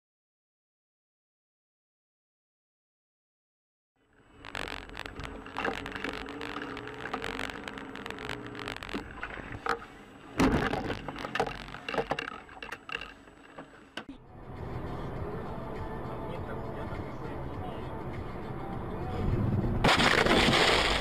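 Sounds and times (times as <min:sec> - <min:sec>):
car running hum: 0:04.2 - 0:20.3
clicks and knocks: 0:04.5 - 0:14.1
loud crash impact: 0:19.8 - 0:21.0.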